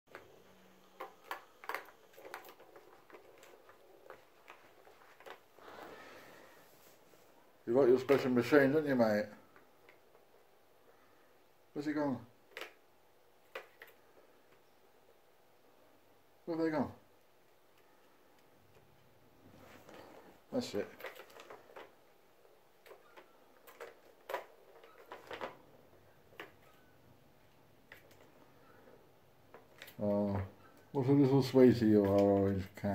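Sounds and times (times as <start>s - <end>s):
ball rolling in plastic track: 0.1s - 6.5s
plastic cat toy clicking and rattling: 0.9s - 5.4s, 20.7s - 25.7s.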